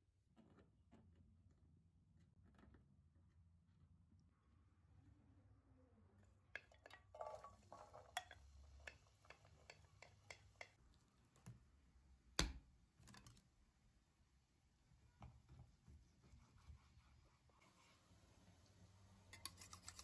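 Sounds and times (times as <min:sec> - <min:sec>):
wooden spatula tapping a bowl: 0:08.2 - 0:10.8.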